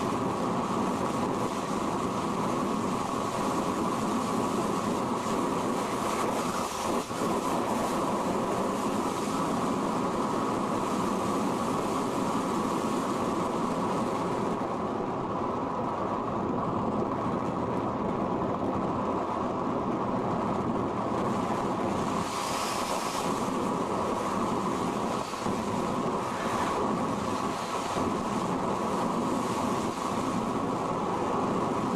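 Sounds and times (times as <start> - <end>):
wind rushing over microphone: 0.0 - 31.9.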